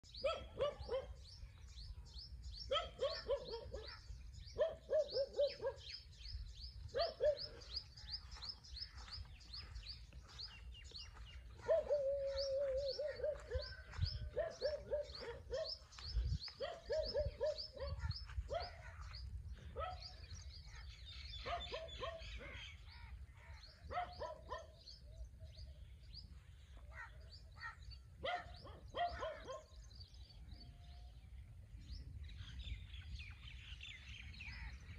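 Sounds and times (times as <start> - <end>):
birds twittering: 0.0 - 34.9
low pulsing bird call: 10.8 - 26.1.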